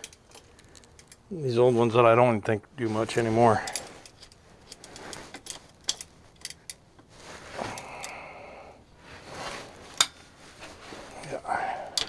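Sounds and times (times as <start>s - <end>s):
hand tools clicking and scraping metal: 0.0s - 1.3s, 3.2s - 8.3s, 9.9s - 12.0s.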